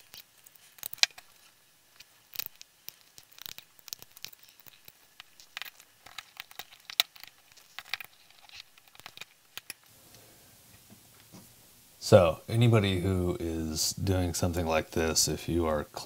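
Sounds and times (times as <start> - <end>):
knife scraping plastic: 0.0 - 9.8.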